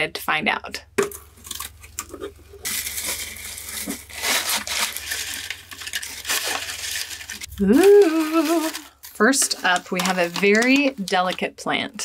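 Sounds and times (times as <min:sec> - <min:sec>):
cardboard box opening: 0:01.4 - 0:09.1
packing material rustling: 0:01.4 - 0:11.3.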